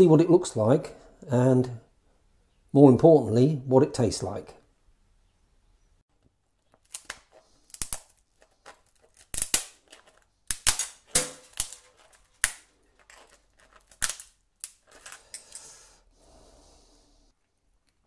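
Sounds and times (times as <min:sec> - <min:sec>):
crab shell cracking: 0:06.7 - 0:15.6.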